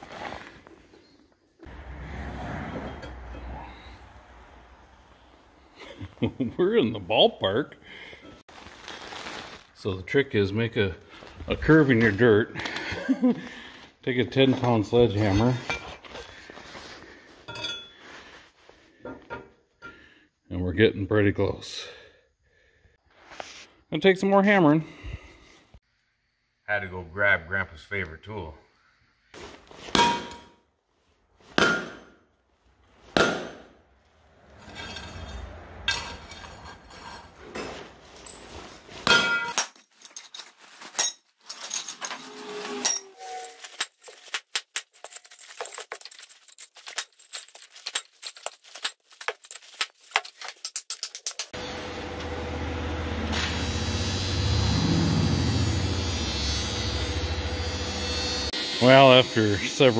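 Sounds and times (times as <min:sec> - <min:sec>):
sledgehammer striking steel plate: 0:33.2 - 0:33.7
metal plate scraping: 0:42.0 - 0:43.6
engine running with pulsing drone: 0:51.7 - 0:58.1.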